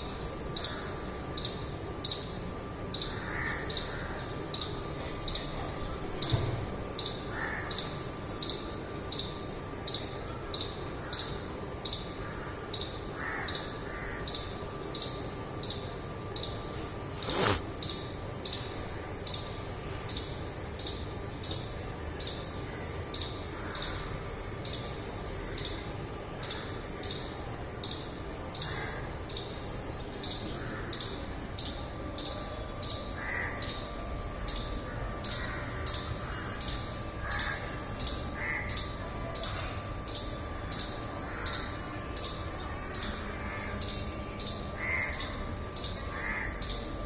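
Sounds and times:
squirrel chirping: 0:00.0 - 0:06.4, 0:07.0 - 0:47.0
crows cawing: 0:03.1 - 0:04.3, 0:07.3 - 0:08.0, 0:12.2 - 0:14.4, 0:23.5 - 0:24.1, 0:28.6 - 0:29.1, 0:33.2 - 0:33.9, 0:34.8 - 0:39.7, 0:41.2 - 0:42.0, 0:42.9 - 0:44.0, 0:44.7 - 0:46.9.

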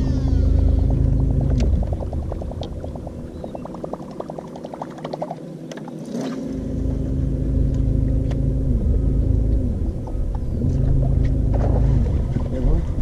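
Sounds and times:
electric motor humming and whining: 0:00.0 - 0:04.3, 0:05.2 - 0:13.0.

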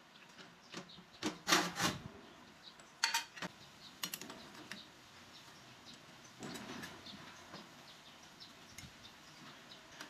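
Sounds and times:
faint metal clicks and ticks: 0:02.7 - 0:07.8.

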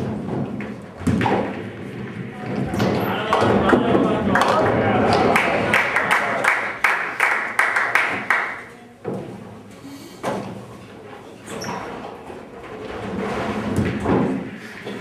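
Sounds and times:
bowling balls thudding on lanes: 0:00.0 - 0:06.8, 0:12.0 - 0:15.0
cheering voices: 0:03.0 - 0:06.8
spectators clapping in rhythm: 0:03.4 - 0:08.7.

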